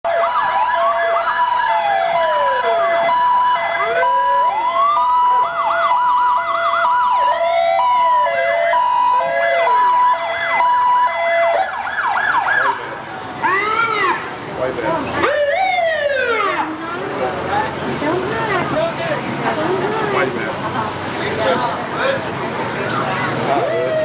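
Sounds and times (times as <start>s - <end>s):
wailing sirens: 0.0s - 14.4s, 15.1s - 18.6s, 23.4s - 24.0s
two-tone hi-lo siren: 0.1s - 12.8s
yelping sirens: 0.1s - 18.7s, 23.4s - 24.0s.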